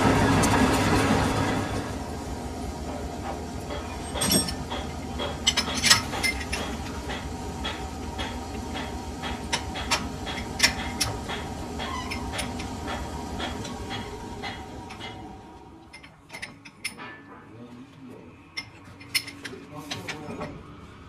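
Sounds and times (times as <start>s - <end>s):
lathe machine hum: 0.0s - 16.3s.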